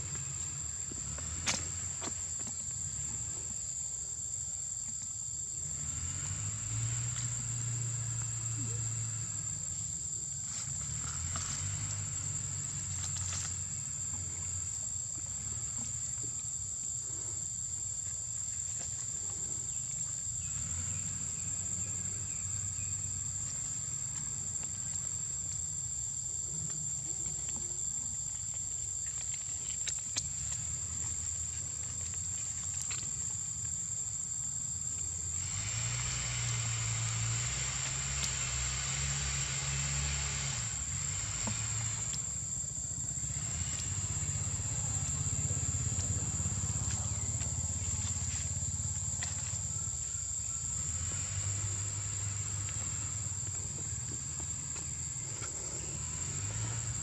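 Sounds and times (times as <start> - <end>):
high-pitched insect drone: 5.4 - 57.0
low steady rumble: 36.4 - 57.0.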